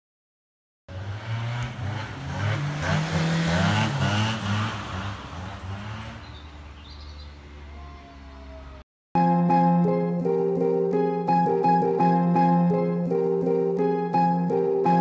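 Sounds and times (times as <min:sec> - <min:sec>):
car passing by: 0:00.9 - 0:08.7.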